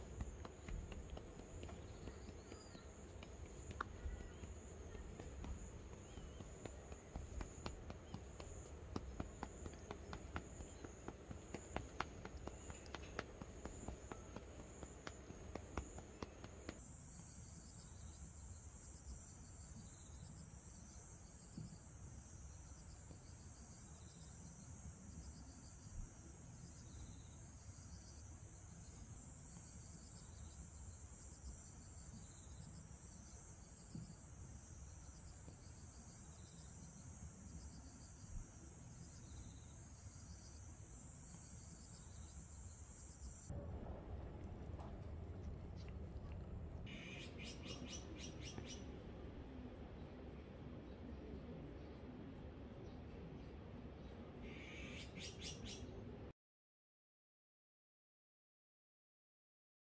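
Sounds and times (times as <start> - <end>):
insect pulsing call: 46.9 - 48.9, 54.4 - 55.8.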